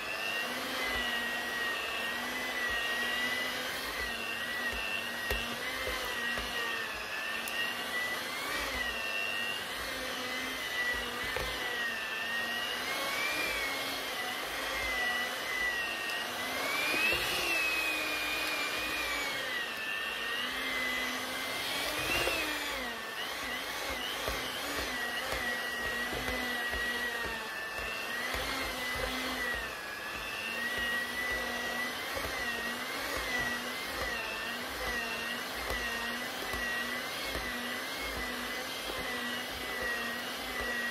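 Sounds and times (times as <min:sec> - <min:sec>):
electric mixer motor whining: 0:00.0 - 0:40.9.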